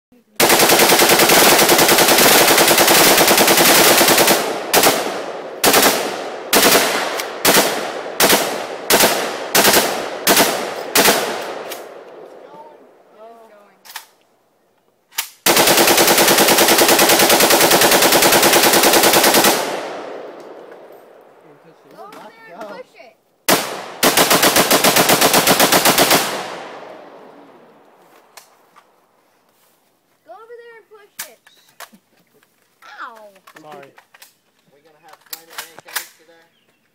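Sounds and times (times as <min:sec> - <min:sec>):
rifle firing automatic bursts: 0:00.4 - 0:11.8, 0:15.4 - 0:20.2, 0:23.5 - 0:26.8
gunfire echo: 0:00.4 - 0:12.4, 0:15.2 - 0:21.4, 0:23.5 - 0:27.9.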